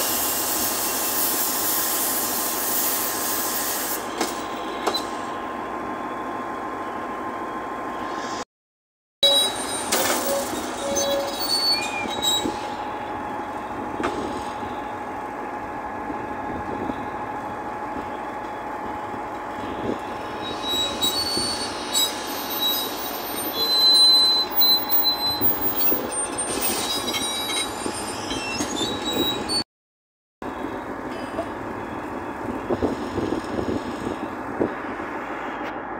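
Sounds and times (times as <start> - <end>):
high metal squeal: 9.2 - 14.8, 19.6 - 29.6
bulldozer track chain clanking: 9.2 - 15.4, 17.8 - 29.6.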